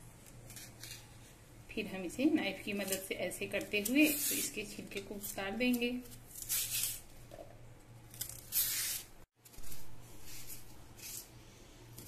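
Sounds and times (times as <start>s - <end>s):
knife scraping banana peel: 2.7s - 7.1s, 8.1s - 11.4s.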